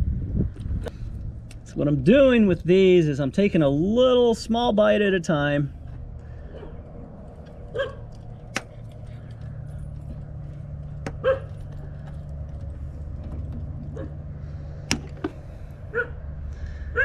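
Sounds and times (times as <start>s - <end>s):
steady low hum: 0.0s - 17.0s
dog barking: 7.7s - 8.1s, 11.2s - 11.6s, 15.9s - 16.2s.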